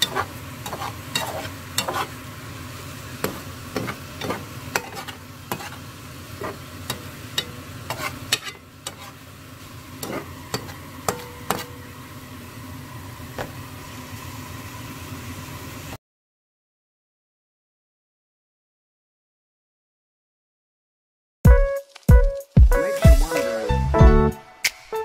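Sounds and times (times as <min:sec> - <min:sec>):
utensil clacking and scraping pan: 0:00.0 - 0:02.2, 0:03.2 - 0:05.8, 0:06.4 - 0:09.2, 0:10.0 - 0:11.8
food sizzling in a hot pan: 0:00.0 - 0:16.0, 0:22.8 - 0:23.7.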